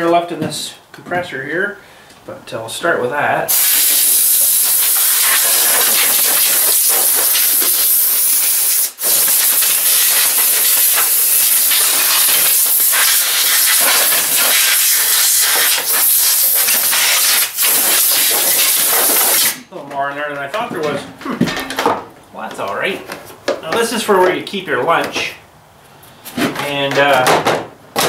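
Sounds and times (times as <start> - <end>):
compressed air blow gun hissing: 3.5 - 19.6.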